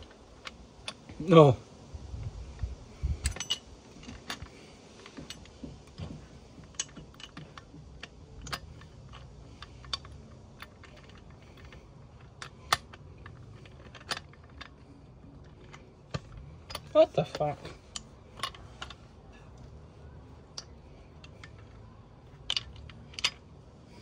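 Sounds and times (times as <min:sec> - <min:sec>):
small metal clicks and clinks: 0:03.2 - 0:05.6, 0:06.6 - 0:19.6, 0:20.5 - 0:24.0.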